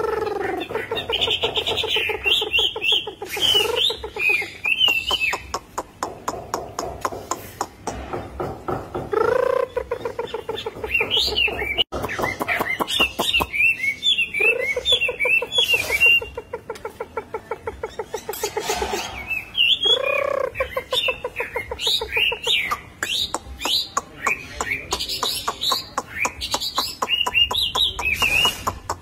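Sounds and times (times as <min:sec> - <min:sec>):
bird whistled song: 0:00.0 - 0:05.6, 0:09.1 - 0:16.6, 0:17.8 - 0:29.0
bird rapid low rattling: 0:18.1 - 0:19.9.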